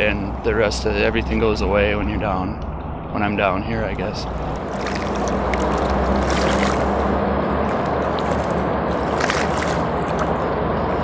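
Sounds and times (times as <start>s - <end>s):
low rumble: 0.0s - 11.0s
water lapping against rocks: 4.5s - 10.4s
splashy crackles: 4.6s - 10.4s.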